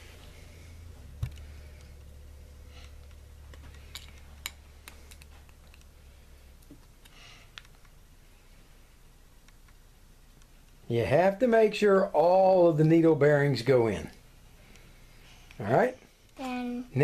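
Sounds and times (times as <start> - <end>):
low steady hum: 0.0 - 17.0.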